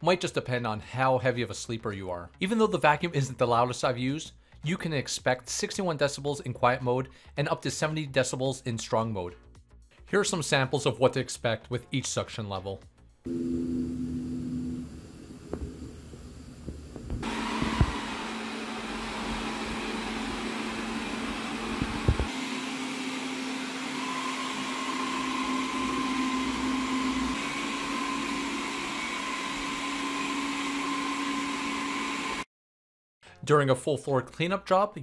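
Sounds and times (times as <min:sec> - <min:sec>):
robot vacuum suction fan: 0:13.3 - 0:32.4.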